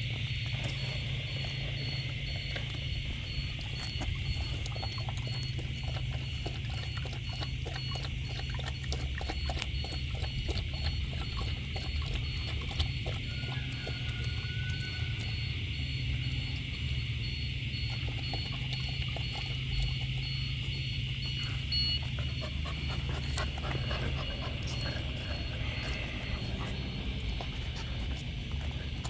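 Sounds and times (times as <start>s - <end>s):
dog lapping water from bowl: 0.0s - 29.0s
steady low hum: 0.0s - 29.0s.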